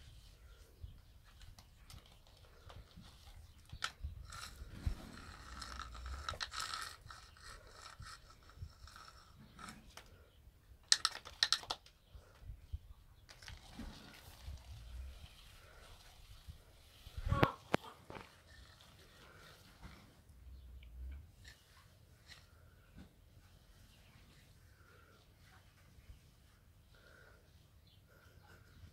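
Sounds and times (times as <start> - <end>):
plastic slingshot scraping on concrete: 1.7 - 11.8, 13.3 - 20.2.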